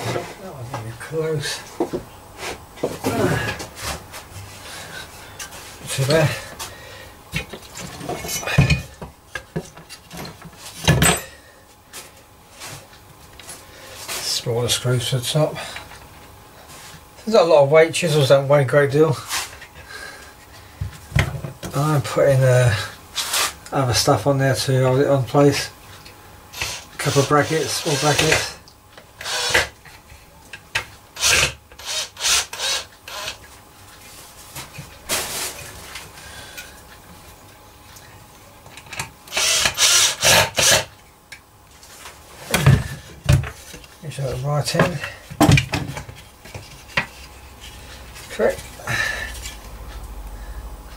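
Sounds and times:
wood knocking on workbench: 0:01.8 - 0:02.1
wood and tools scraping: 0:01.8 - 0:06.8, 0:23.2 - 0:23.6, 0:44.7 - 0:49.6.

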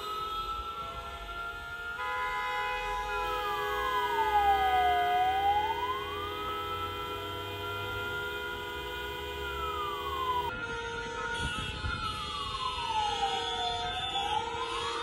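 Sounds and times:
many car horns honking: 0:00.0 - 0:11.9
wailing siren: 0:00.0 - 0:15.0.

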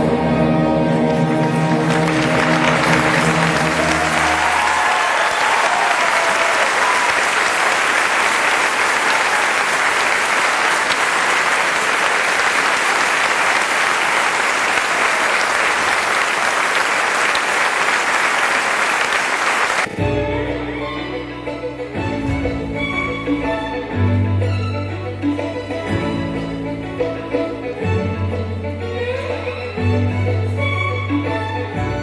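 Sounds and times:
audience applauding: 0:01.4 - 0:20.0.

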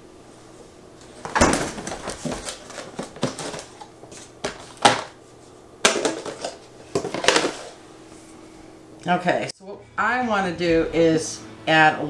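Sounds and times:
plastic lid crackling and snapping: 0:01.5 - 0:05.2.

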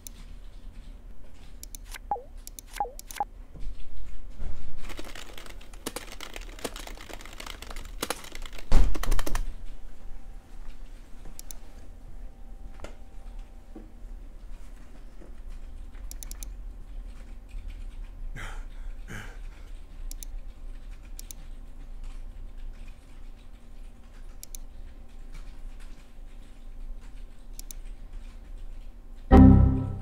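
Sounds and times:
keyboard and mouse clicks: 0:00.0 - 0:03.3, 0:04.9 - 0:09.5, 0:10.8 - 0:11.6, 0:15.5 - 0:18.2, 0:19.8 - 0:29.3
computer error chime: 0:29.3 - 0:30.0
low steady hum: 0:29.3 - 0:30.0.

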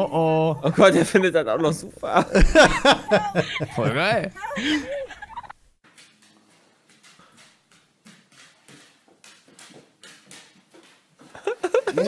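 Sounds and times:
dog claws tapping on hard floor: 0:05.9 - 0:11.4.

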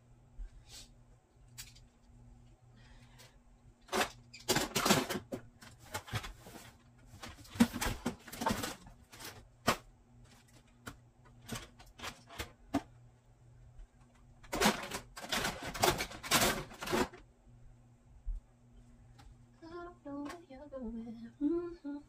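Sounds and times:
plastic toys clattering: 0:01.6 - 0:01.9, 0:03.8 - 0:06.6, 0:07.2 - 0:09.8, 0:11.3 - 0:12.9, 0:14.4 - 0:17.2.

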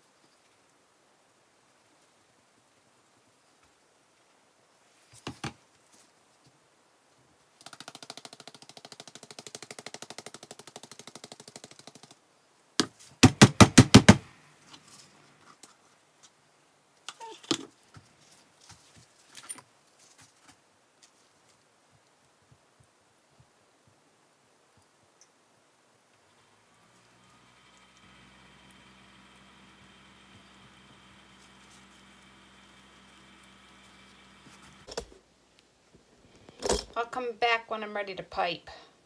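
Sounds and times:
hard knocks on wood: 0:12.8 - 0:14.3
buzzing rattle: 0:26.4 - 0:35.0.

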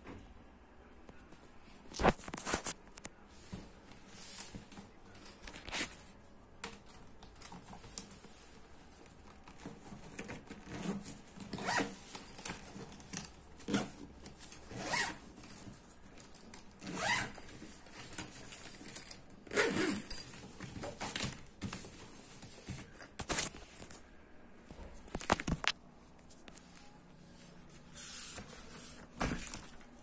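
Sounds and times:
straps rasping through buckles: 0:09.5 - 0:14.1, 0:16.3 - 0:21.4.

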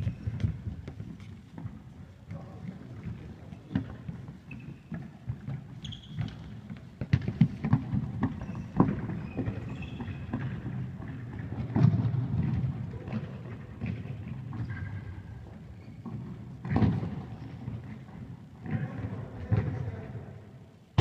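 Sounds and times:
trainers squeaking on hall floor: 0:00.0 - 0:12.1, 0:13.1 - 0:20.0
ball being kicked and bouncing: 0:03.0 - 0:13.2.

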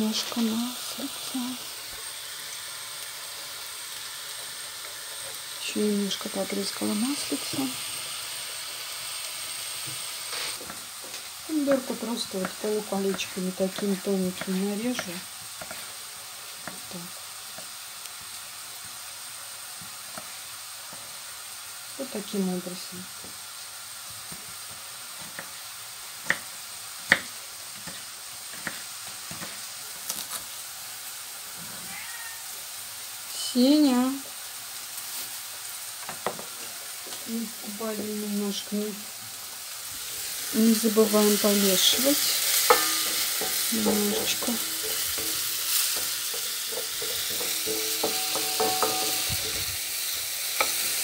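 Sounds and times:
mushrooms sizzling in oil: 0:00.0 - 0:51.0
spatula scraping pan: 0:11.7 - 0:16.0, 0:41.8 - 0:49.8.

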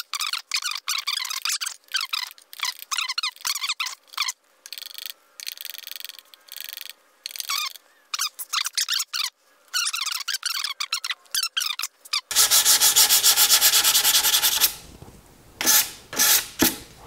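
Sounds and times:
spatula squeaky chirps: 0:07.4 - 0:12.3.

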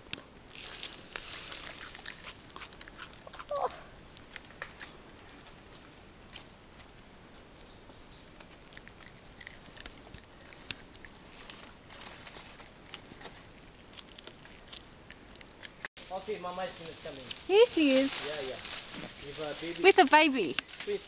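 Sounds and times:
lemur chewing banana: 0:00.5 - 0:06.8, 0:08.1 - 0:11.8, 0:12.4 - 0:15.9.

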